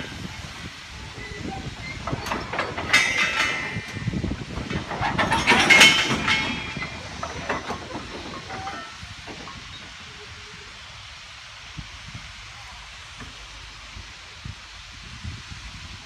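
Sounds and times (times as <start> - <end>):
wagons clanking and squealing: 0.0 - 10.8
steam hissing: 0.0 - 16.0.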